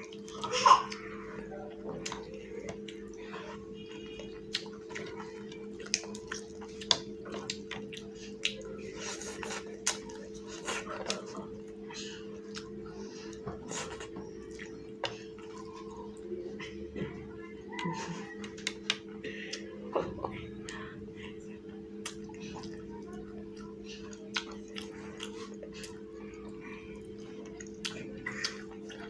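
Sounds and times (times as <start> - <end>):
steady low hum: 0.0 - 29.0
wet chewing and lip smacks: 4.3 - 8.8, 24.0 - 26.0.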